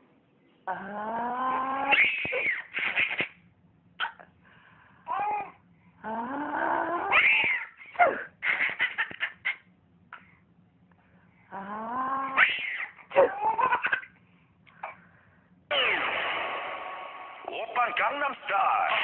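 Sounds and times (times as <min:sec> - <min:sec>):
babies squealing and giggling: 0:01.6 - 0:03.3, 0:07.0 - 0:09.7, 0:12.2 - 0:14.0.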